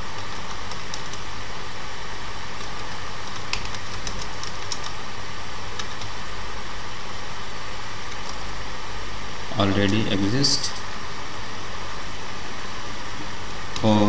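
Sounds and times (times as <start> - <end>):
low electrical hum: 0.0 - 14.0
steady hiss: 0.0 - 14.0
keyboard keys clicking: 0.2 - 1.2, 2.6 - 5.0, 5.8 - 6.2, 8.1 - 8.4.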